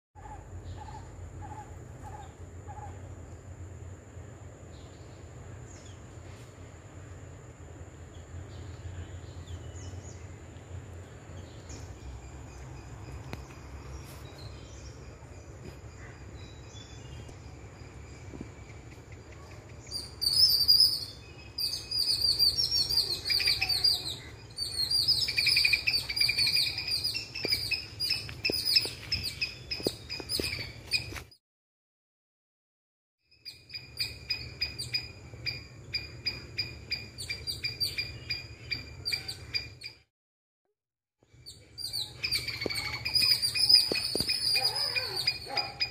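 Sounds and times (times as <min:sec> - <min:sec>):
faint high insect whine: 0:00.2 - 0:30.8, 0:41.5 - 0:45.9
low rumble of wind: 0:00.2 - 0:31.2
squirrel alarm call chips: 0:41.8 - 0:45.9.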